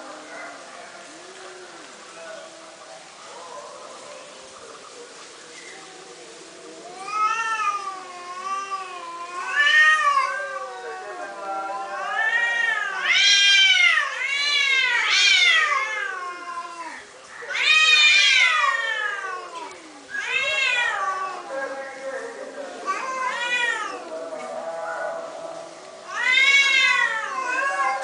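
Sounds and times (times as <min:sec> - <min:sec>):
cats meowing: 0:05.6 - 0:28.0.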